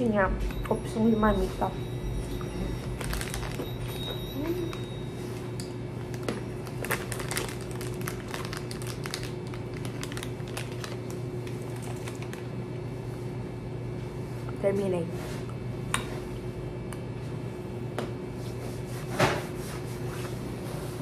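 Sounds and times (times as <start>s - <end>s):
steady low hum: 0.0s - 21.0s
plastic wrapper crinkling: 2.8s - 4.9s, 6.0s - 12.5s.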